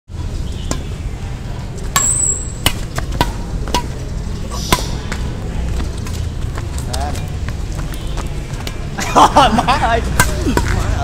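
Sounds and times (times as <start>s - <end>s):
rackets hitting shuttlecock: 0.6s - 1.0s, 1.8s - 5.8s, 10.0s - 10.9s.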